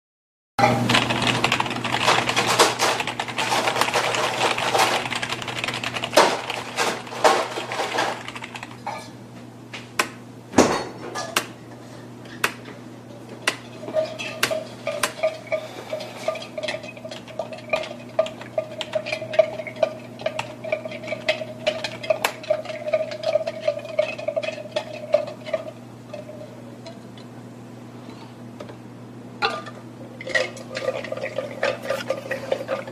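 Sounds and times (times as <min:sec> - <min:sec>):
keyboard typing clatter: 0:00.9 - 0:08.8
low steady hum: 0:03.3 - 0:32.9.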